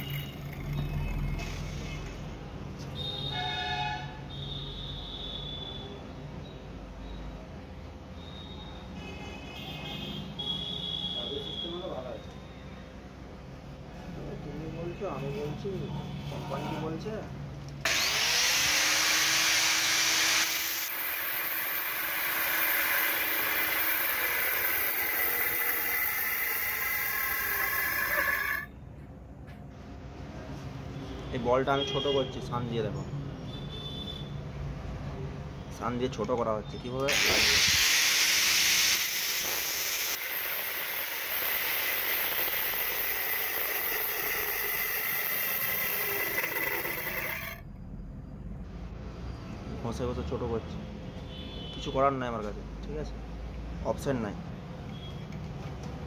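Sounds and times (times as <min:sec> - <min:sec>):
angle grinder grinding steel: 0:17.9 - 0:28.7, 0:37.1 - 0:47.6.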